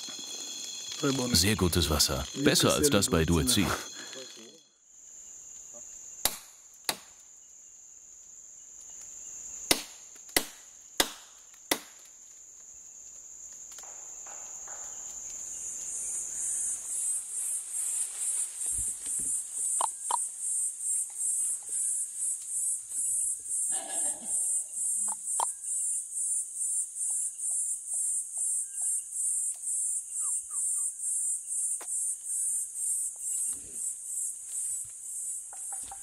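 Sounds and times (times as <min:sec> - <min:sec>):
forest insects buzzing: 0:00.0 - 0:36.0
machete chopping wood: 0:06.2 - 0:07.1, 0:09.7 - 0:12.0.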